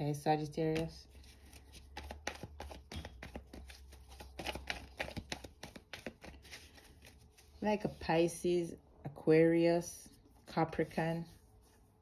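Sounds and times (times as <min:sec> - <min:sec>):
cards being shuffled: 0:00.6 - 0:07.8.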